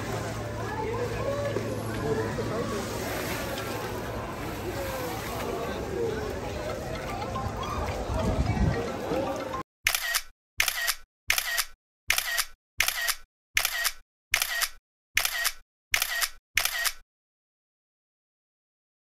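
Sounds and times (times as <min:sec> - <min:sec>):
camera shutter clicks: 0:09.9 - 0:17.0.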